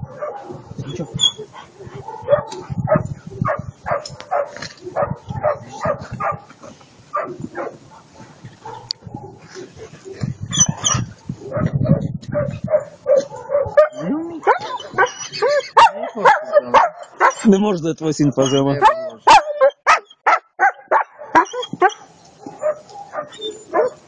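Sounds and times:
dog yipping and whining: 0:10.5 - 0:11.1, 0:13.1 - 0:15.9, 0:18.4 - 0:24.0.

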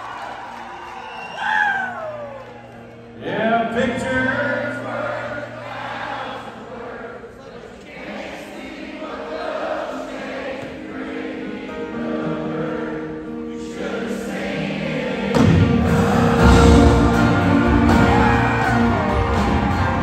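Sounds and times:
country band playing live: 0:12.0 - 0:20.0
drums: 0:15.1 - 0:20.0.

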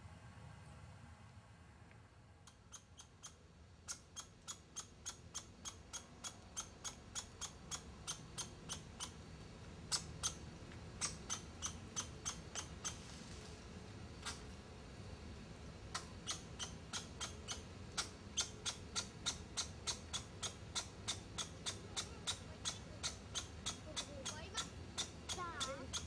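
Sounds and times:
small animal chirping: 0:02.4 - 0:09.2, 0:09.9 - 0:13.1, 0:14.2 - 0:14.4, 0:15.9 - 0:26.0.

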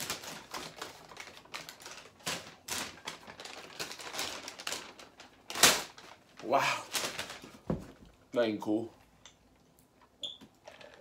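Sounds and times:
paper bag rustling and crinkling: 0:00.0 - 0:08.1.

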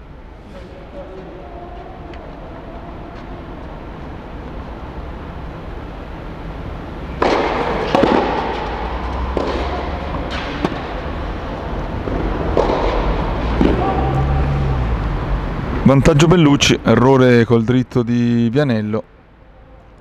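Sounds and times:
tennis ball struck with rackets: 0:07.1 - 0:14.3.

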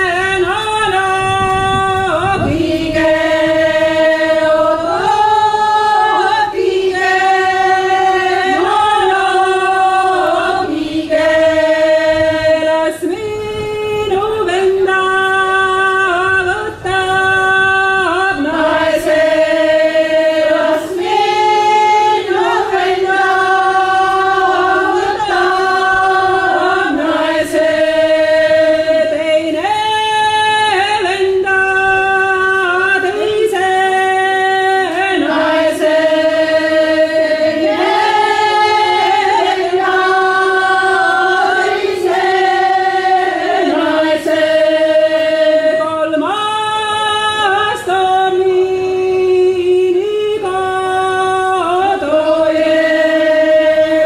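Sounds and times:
women singing unaccompanied: 0:00.0 - 0:54.0.

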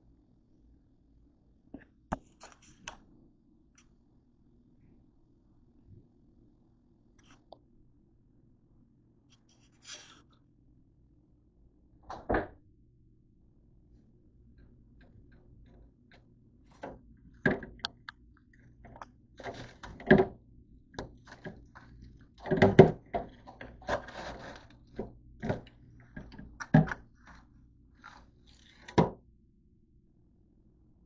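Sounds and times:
low steady hum: 0:00.0 - 0:31.0
freezer door knocks and clicks: 0:19.4 - 0:20.4, 0:22.4 - 0:27.0.

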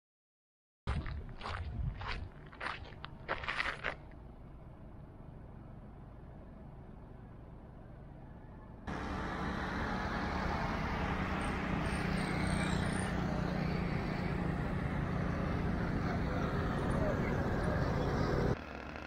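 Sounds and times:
road noise: 0:00.9 - 0:19.0
car engine hum: 0:08.9 - 0:19.0.

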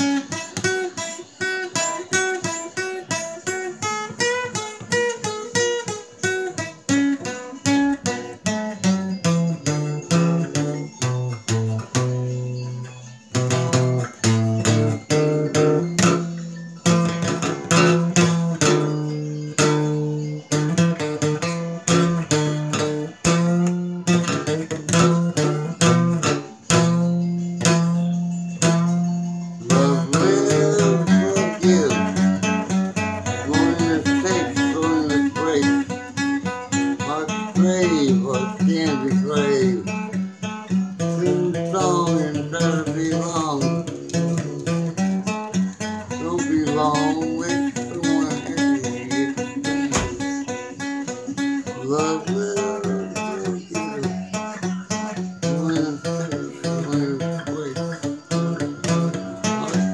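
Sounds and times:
acoustic guitar strumming: 0:00.0 - 0:59.9
man singing: 0:29.6 - 0:59.9.

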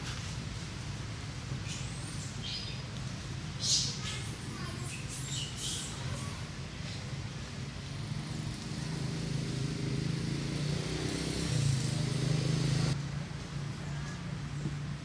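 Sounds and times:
vehicle engine droning: 0:07.1 - 0:13.8.

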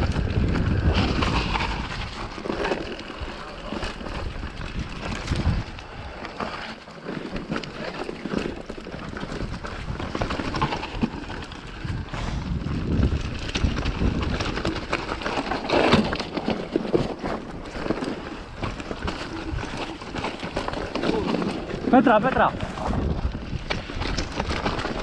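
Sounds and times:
wind on microphone: 0:00.0 - 0:03.3, 0:03.9 - 0:06.2, 0:11.6 - 0:15.0, 0:21.0 - 0:25.0
bike rattling: 0:00.0 - 0:25.0
tyres crunching over stones: 0:00.0 - 0:25.0.

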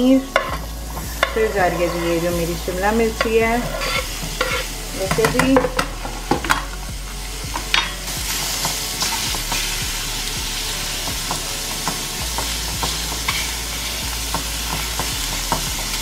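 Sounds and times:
vegetables sizzling in oil: 0:00.0 - 0:16.0
spoon scraping a pan: 0:00.3 - 0:09.8.

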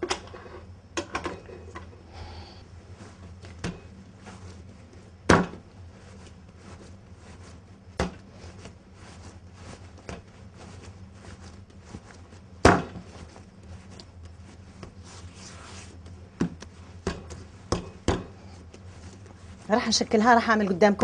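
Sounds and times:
dough thumping on wood: 0:05.2 - 0:05.7, 0:08.0 - 0:08.3, 0:12.6 - 0:13.2, 0:16.4 - 0:18.4.

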